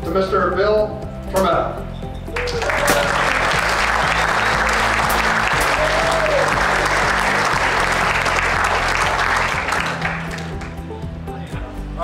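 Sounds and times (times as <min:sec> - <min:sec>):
background music with bass: 0:00.0 - 0:12.0
audience applauding: 0:02.3 - 0:10.9.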